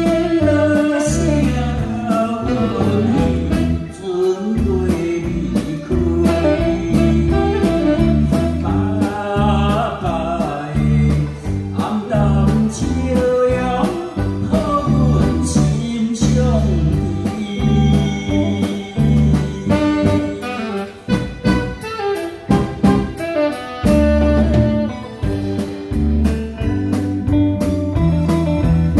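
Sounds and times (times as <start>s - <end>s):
man singing into a microphone: 0.0s - 21.2s
amplified band with guitar: 0.0s - 28.9s.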